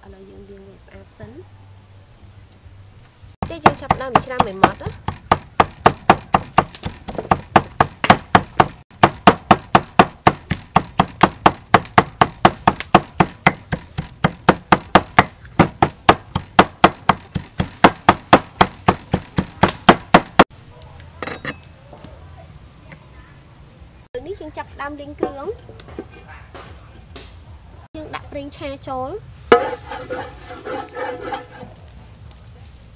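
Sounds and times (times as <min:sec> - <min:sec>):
cleaver chopping on wooden block: 0:03.4 - 0:20.5.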